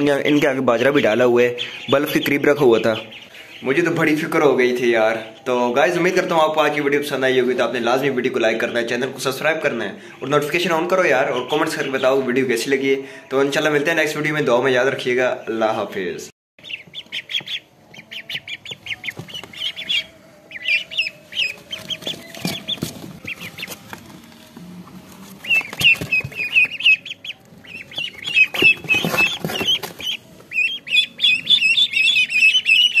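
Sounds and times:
ducklings peeping: 0:00.0 - 0:16.0, 0:16.6 - 0:33.0
scuffling knocks: 0:28.0 - 0:30.2.

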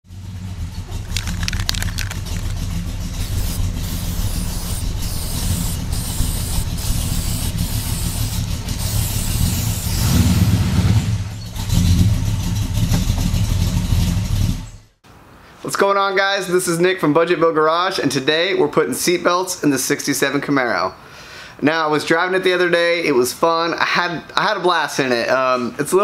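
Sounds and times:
car engine rumbling and revving: 0:00.1 - 0:14.9.

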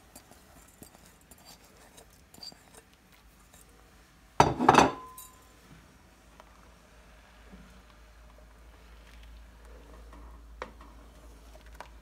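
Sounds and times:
glass clinking knocks: 0:04.4 - 0:05.3
glass bowl clattering: 0:04.4 - 0:05.4.

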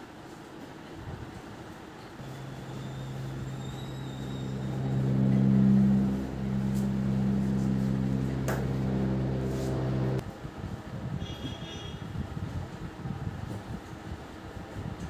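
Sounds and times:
low motor-like hum: 0:02.2 - 0:10.2.

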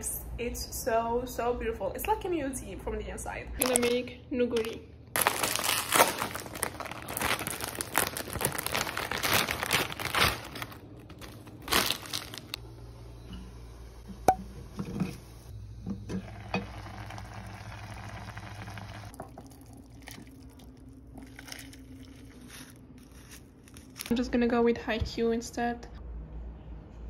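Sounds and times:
low steady hum: 0:00.0 - 0:27.0
plastic packet crinkling: 0:04.6 - 0:12.6, 0:21.2 - 0:24.1.

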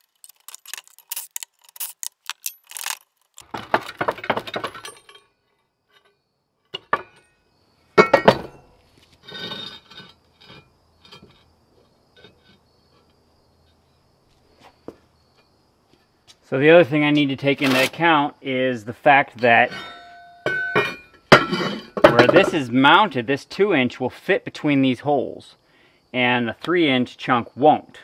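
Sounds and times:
steel parts clinking on bench: 0:00.0 - 0:03.4, 0:04.5 - 0:05.4, 0:19.7 - 0:22.4
metal rattling: 0:00.0 - 0:05.4
loud clank of steel set down: 0:08.0 - 0:08.8, 0:19.8 - 0:22.4.

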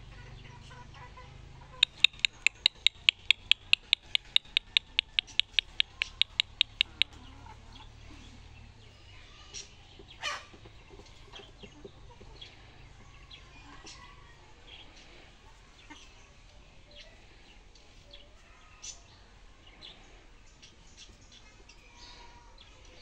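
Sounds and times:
chickens clucking: 0:00.1 - 0:08.5, 0:09.5 - 0:18.4
rapid high chirps: 0:01.8 - 0:07.1.

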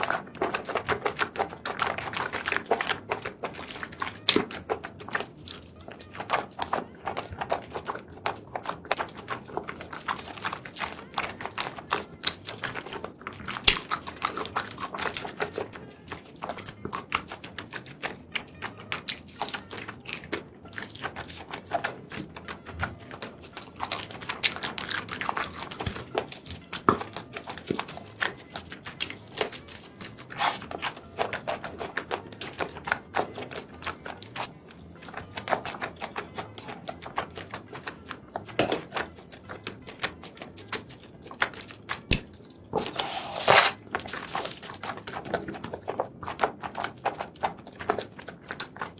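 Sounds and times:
wet chewing and smacking: 0:00.0 - 0:48.9
shellfish pulled apart squelching: 0:29.4 - 0:30.8.

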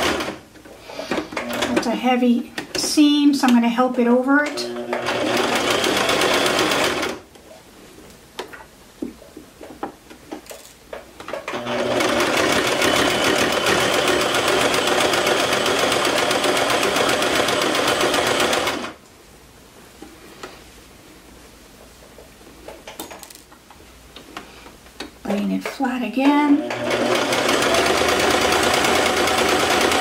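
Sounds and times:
sewing machine stitching: 0:00.0 - 0:00.4, 0:01.4 - 0:01.9, 0:04.4 - 0:07.2, 0:11.5 - 0:18.9, 0:26.4 - 0:30.0.

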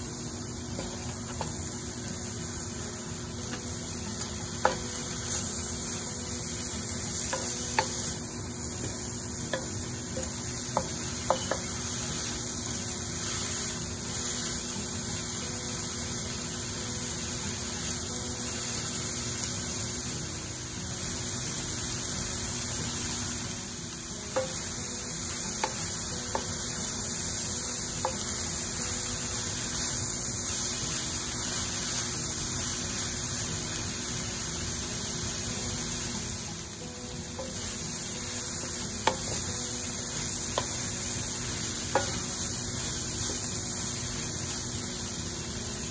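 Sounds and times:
food sizzling in a wok: 0:00.0 - 0:45.9
steady hum: 0:00.0 - 0:45.9
wooden spatula knocking on pan: 0:08.8 - 0:11.8.

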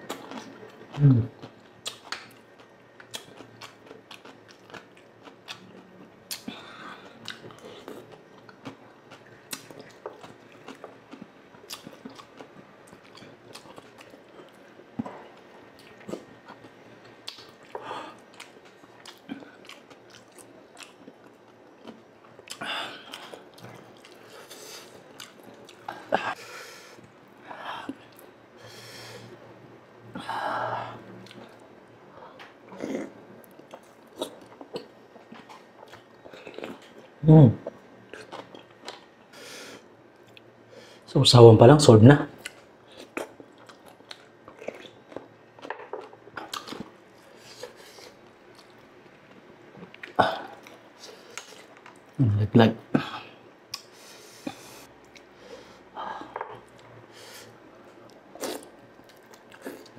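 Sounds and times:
close chewing: 0:42.4 - 0:52.2.

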